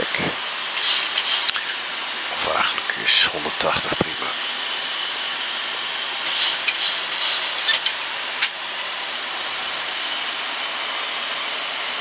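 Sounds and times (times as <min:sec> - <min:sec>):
aircraft cockpit rushing noise: 0:00.8 - 0:04.4, 0:06.2 - 0:08.6.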